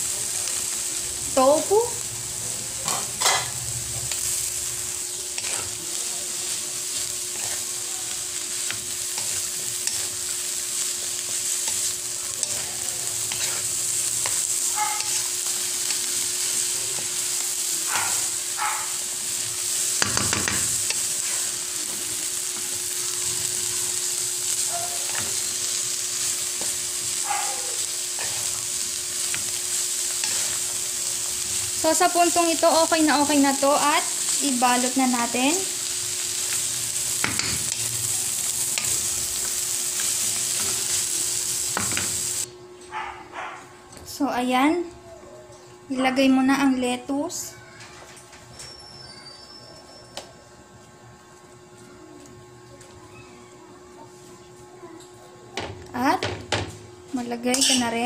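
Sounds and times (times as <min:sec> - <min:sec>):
food sizzling in a pan: 0:00.0 - 0:42.5, 0:55.6 - 0:58.0
spatula scraping a pan: 0:02.8 - 0:07.8, 0:08.4 - 0:17.1, 0:27.8 - 0:30.8.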